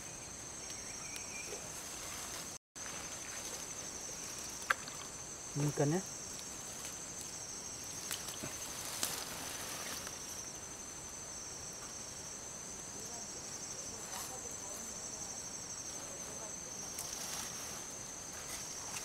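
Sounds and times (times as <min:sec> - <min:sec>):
insects trilling: 0:00.0 - 0:19.0
grass rustling and clicks: 0:00.6 - 0:10.6, 0:16.0 - 0:19.0.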